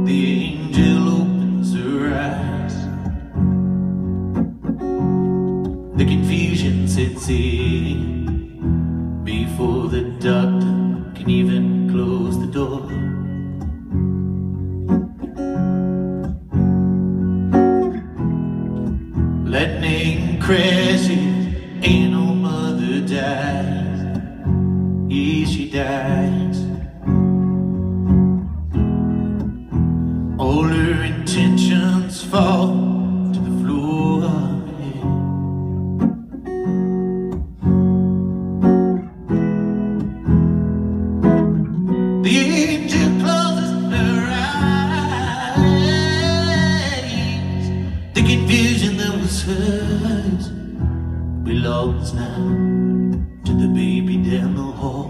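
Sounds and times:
man singing: 0.0 - 3.4, 5.9 - 13.6, 19.4 - 27.2, 30.3 - 35.4, 42.2 - 55.0
acoustic guitar: 0.0 - 55.0.

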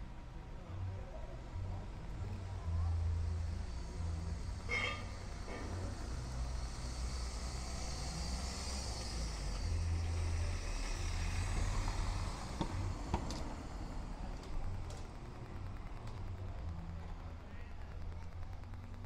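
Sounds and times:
car passing by: 2.6 - 14.6
faint clicks: 11.8 - 19.0.

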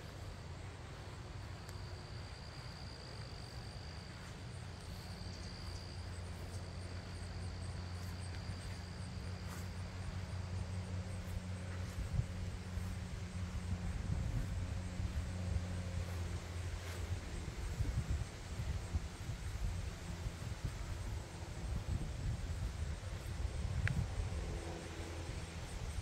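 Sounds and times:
insects trilling: 0.0 - 26.0
low rumble: 5.6 - 24.6.

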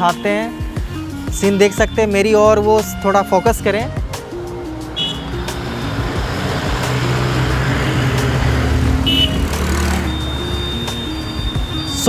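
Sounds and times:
motorcycle passing: 4.0 - 12.0
truck passing: 4.0 - 12.0.

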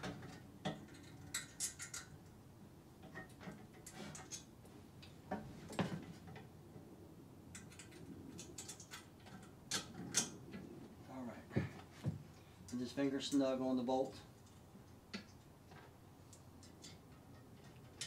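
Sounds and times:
small parts clicking and tapping: 0.0 - 2.4, 7.5 - 10.6, 14.4 - 18.0.

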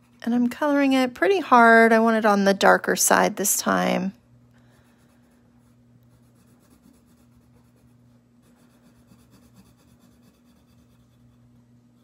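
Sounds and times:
steady low hum: 0.0 - 12.0
pencil scratching on paper: 4.9 - 12.0.

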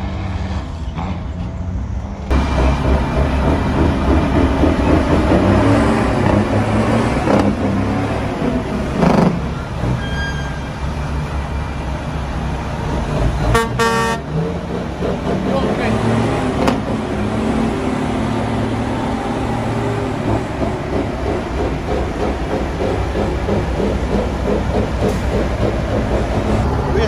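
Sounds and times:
diesel truck engine rumbling: 0.0 - 27.0
truck horn toot: 9.5 - 10.8, 13.4 - 14.4.

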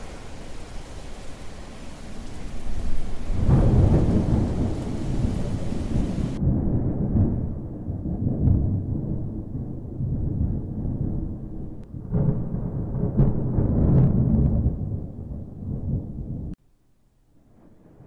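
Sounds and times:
rain hiss: 0.0 - 6.4
thunder rumbling: 0.0 - 16.6, 17.4 - 18.0.

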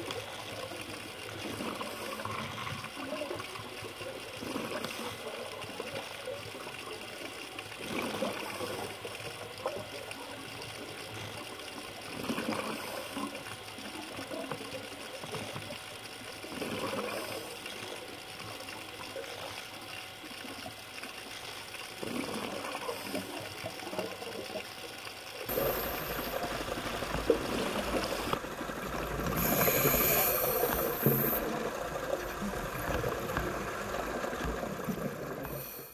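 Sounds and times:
muffled underwater water rush: 0.0 - 35.9.

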